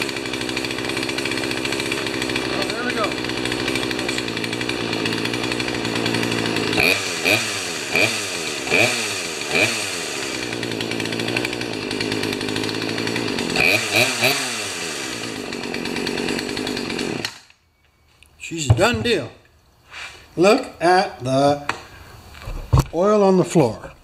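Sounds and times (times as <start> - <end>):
chainsaw engine idling and revving: 0.0 - 17.5.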